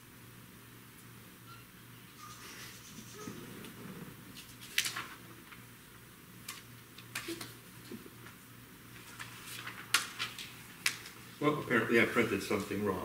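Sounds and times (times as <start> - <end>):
faint low hum: 0.0 - 13.0
paper rustling: 3.6 - 5.7, 6.4 - 11.4, 12.1 - 12.8.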